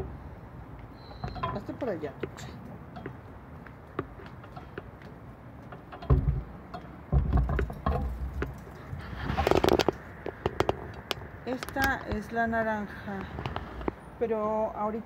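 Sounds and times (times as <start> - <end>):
crackly rustling: 0.8 - 14.0
clicks and low thumps: 1.2 - 12.2.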